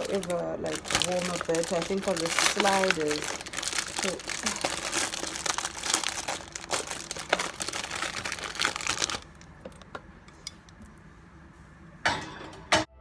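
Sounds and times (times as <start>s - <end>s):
plastic bag crinkling: 0.0s - 10.0s.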